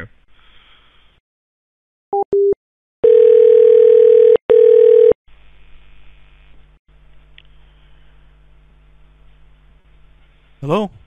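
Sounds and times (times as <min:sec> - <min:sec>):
dial tone: 0:02.2 - 0:05.2
faint line hiss and hum: 0:05.3 - 0:11.0.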